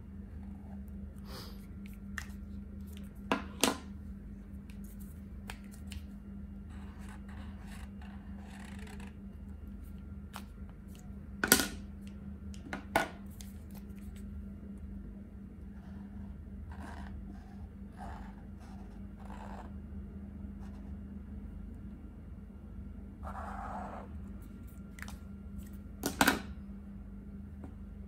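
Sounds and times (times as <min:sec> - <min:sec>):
steady low hum: 0:00.0 - 0:28.0.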